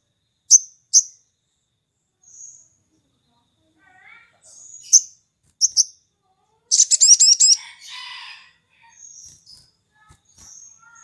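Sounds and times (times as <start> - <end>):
buzzy bird trill: 0.4 - 1.2, 4.1 - 11.0
bird chirping and whistling: 4.7 - 6.0, 6.7 - 7.6.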